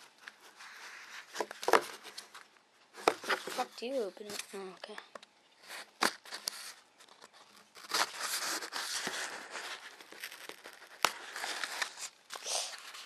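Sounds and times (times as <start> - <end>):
cardboard scraping and tearing: 3.0 - 4.6, 5.6 - 13.0.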